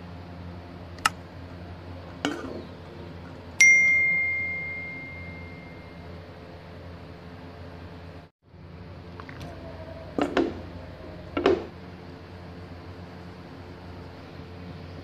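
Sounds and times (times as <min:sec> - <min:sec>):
low steady hum: 0:00.0 - 0:15.0
bright bell ding: 0:03.6 - 0:06.2.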